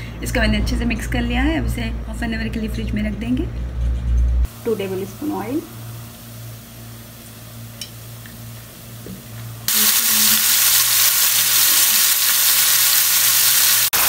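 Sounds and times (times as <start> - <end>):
chicken sizzling in hot oil: 4.5 - 14.0.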